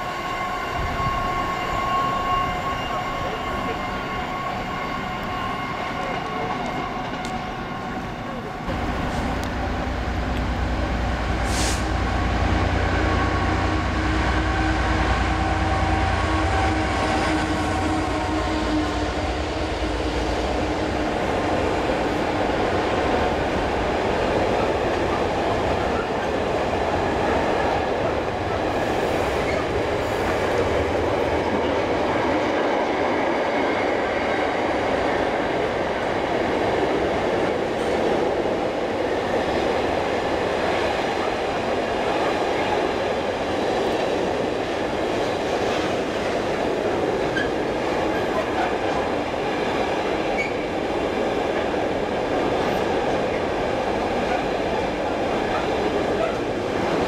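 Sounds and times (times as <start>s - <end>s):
train wheels rolling on rails: 0.0s - 57.0s.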